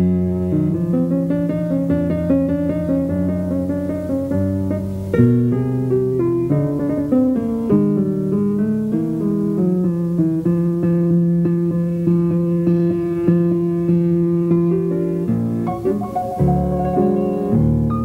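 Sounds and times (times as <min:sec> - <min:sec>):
plucked instrumental music: 0:11.4 - 0:18.0.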